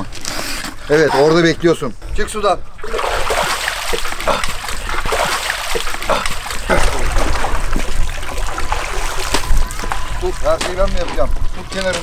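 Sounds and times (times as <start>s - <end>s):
water splashing and sloshing: 2.6s - 12.0s
water streaming off clothes: 2.8s - 11.5s.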